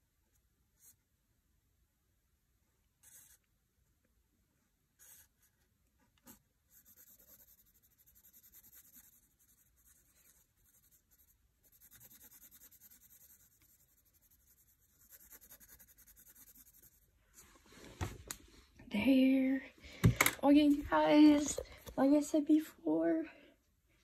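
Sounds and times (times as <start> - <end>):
pencil scratching on paper: 3.0 - 3.5, 5.0 - 17.1.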